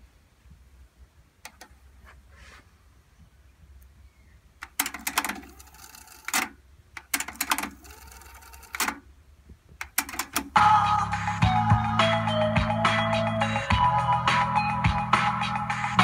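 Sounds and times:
cassette deck buttons clicking: 0:01.4 - 0:01.8, 0:04.6 - 0:09.0, 0:09.8 - 0:10.6
cassette mechanism clunking: 0:04.6 - 0:09.1, 0:09.8 - 0:10.6.

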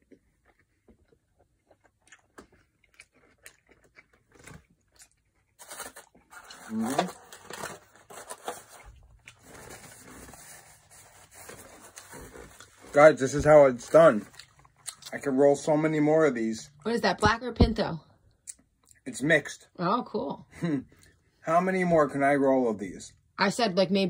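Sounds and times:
person chewing crunchy food: 0:00.0 - 0:07.6, 0:08.6 - 0:10.3, 0:14.0 - 0:15.2.

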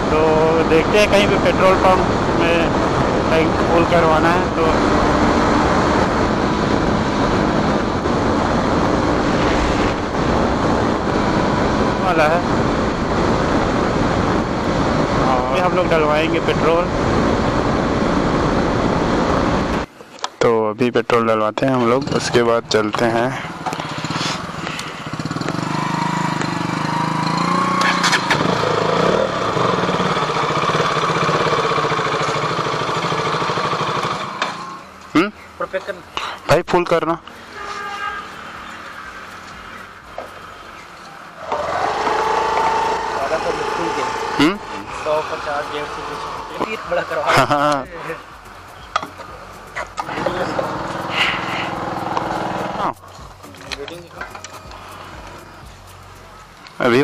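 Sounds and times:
motorcycle engine running: 0:00.0 - 0:19.9, 0:23.0 - 0:36.0, 0:37.2 - 0:57.0
wind rushing over microphone: 0:00.0 - 0:19.9.

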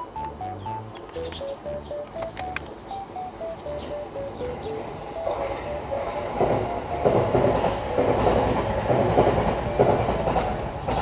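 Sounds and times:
background music with bass line: 0:00.0 - 0:02.8
cicadas buzzing: 0:00.0 - 0:11.0.

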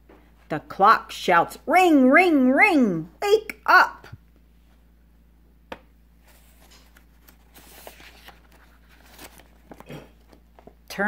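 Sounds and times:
book page turning: 0:06.2 - 0:10.8.

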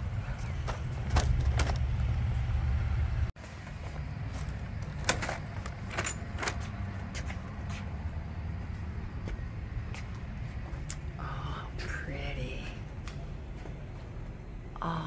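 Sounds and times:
steady low rumble: 0:00.0 - 0:05.7.

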